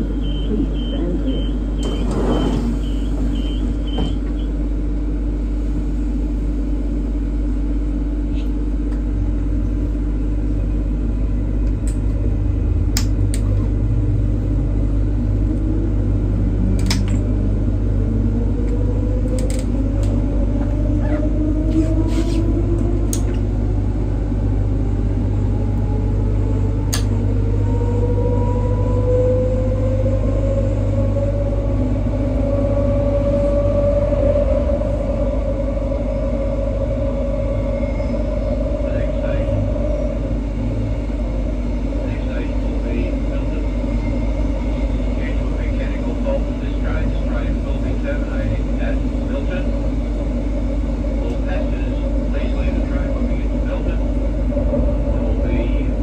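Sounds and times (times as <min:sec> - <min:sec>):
electric train hum and rumble: 0:00.0 - 0:56.0.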